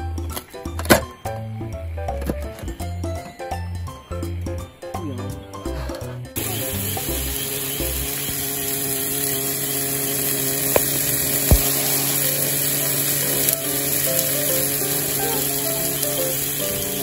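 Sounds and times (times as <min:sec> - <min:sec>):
steaks sizzling on a griddle: 0:06.4 - 0:17.0.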